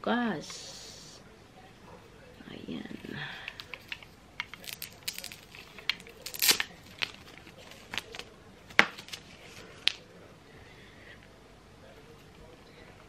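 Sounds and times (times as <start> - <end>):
rustling: 2.9 - 10.0
plastic clicks and rattles: 3.5 - 4.9.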